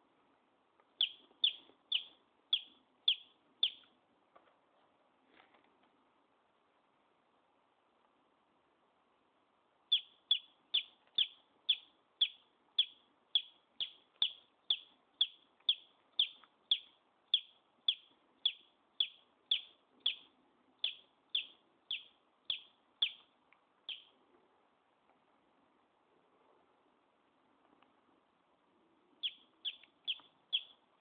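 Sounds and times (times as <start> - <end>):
baby chick peeping: 1.0 - 3.9, 9.9 - 24.1, 29.2 - 31.0.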